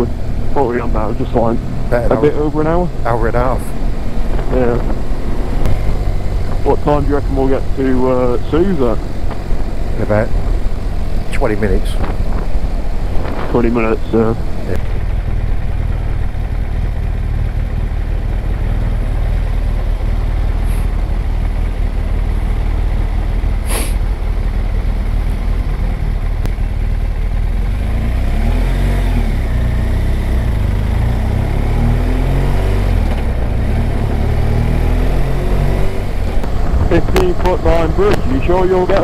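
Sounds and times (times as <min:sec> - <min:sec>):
wind rumble: 0:00.0 - 0:27.8, 0:29.4 - 0:39.0
motorcycle engine: 0:00.0 - 0:39.0
sharp hiss: 0:23.6 - 0:24.1.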